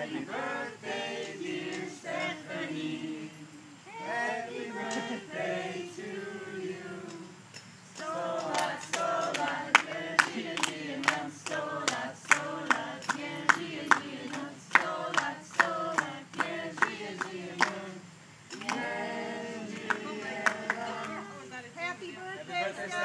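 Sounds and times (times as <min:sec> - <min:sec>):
group singing: 0:00.0 - 0:21.5, 0:22.5 - 0:23.0
clapping in time: 0:08.4 - 0:17.8.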